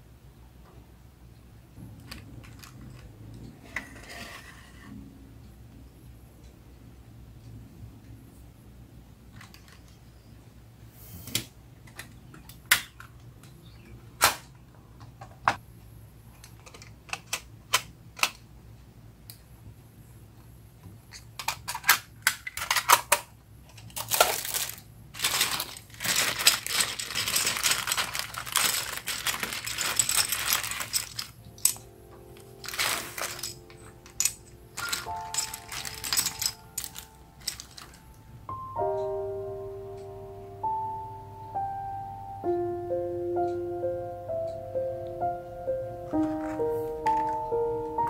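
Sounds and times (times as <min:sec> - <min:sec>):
plastic bag crinkling and rattling: 0:21.5 - 0:31.8, 0:32.4 - 0:38.1.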